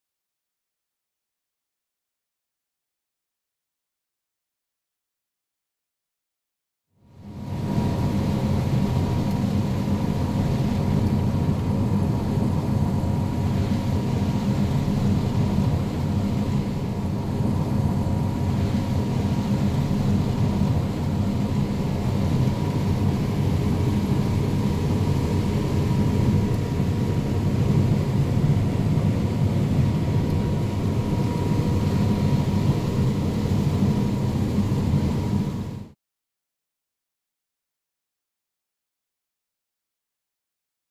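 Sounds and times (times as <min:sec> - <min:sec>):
thin steady machine whine: 0:07.0 - 0:36.0
combine harvester droning: 0:07.4 - 0:35.8.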